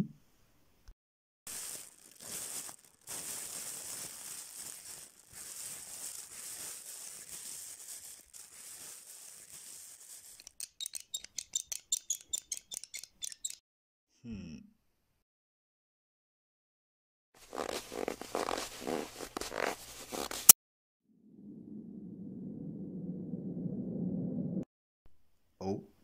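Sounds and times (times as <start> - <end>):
plastic bag rustling: 1.5 - 10.6.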